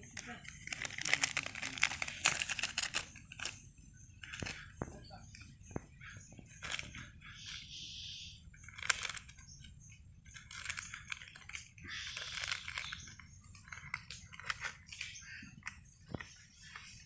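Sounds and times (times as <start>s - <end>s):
squirrel gnawing plastic wrapper: 0.0s - 3.6s, 4.2s - 4.7s, 6.5s - 7.7s, 8.5s - 9.6s, 10.3s - 15.8s.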